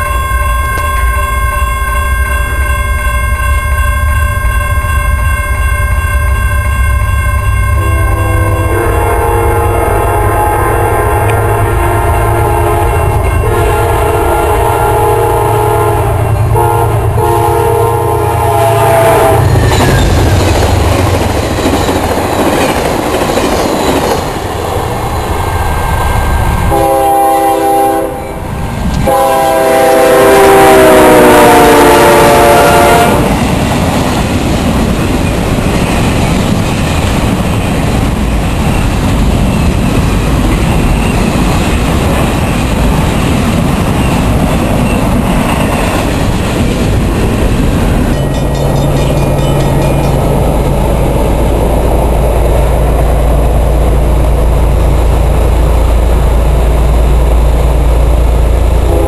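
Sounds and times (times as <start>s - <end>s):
locomotive horn blowing: 0.0s - 19.8s, 26.7s - 33.4s
train rumble and wheel clatter: 0.0s - 59.0s.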